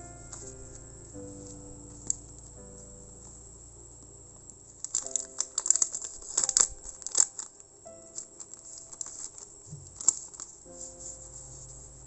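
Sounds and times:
soft background music: 0.0s - 12.0s
plastic packaging crinkling: 4.7s - 12.0s.

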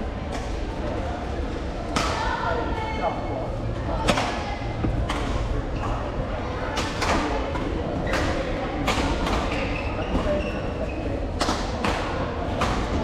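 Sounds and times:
low hall rumble: 0.0s - 13.0s.

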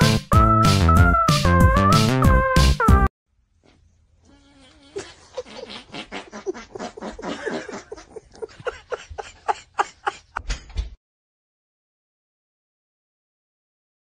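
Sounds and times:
person laughing hard: 4.9s - 10.5s.

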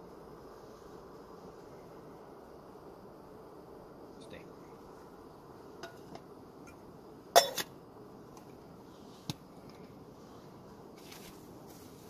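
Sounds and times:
faint rustling: 8.9s - 12.0s.

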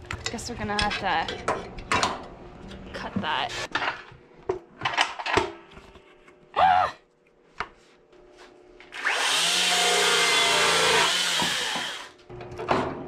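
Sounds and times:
electric chainsaw cutting branch: 8.9s - 12.2s.

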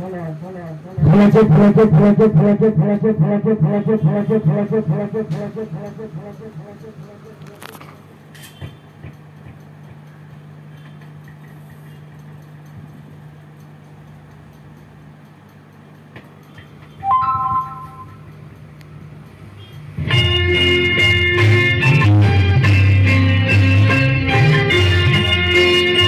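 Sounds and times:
loud beep tone: 17.1s - 18.2s
guitar music through speakers: 20.0s - 26.0s.

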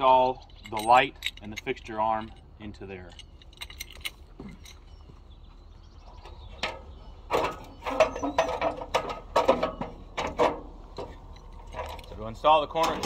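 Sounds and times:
metal ladder clanking: 6.5s - 13.0s.

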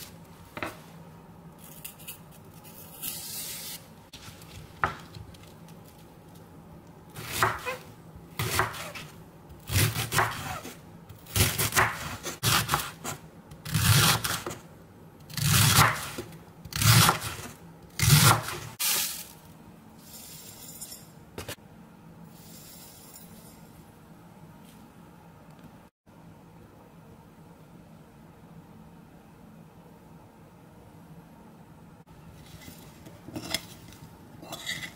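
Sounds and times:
knife chopping on wooden board: 7.2s - 7.8s, 8.4s - 9.1s, 9.7s - 10.7s, 11.4s - 13.2s.

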